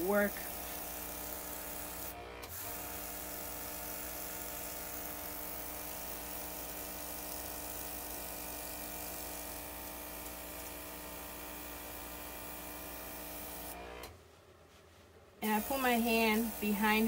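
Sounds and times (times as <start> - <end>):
airbrush hissing: 0.0 - 9.6, 15.4 - 17.0
compressor humming: 0.0 - 14.2, 15.4 - 17.0.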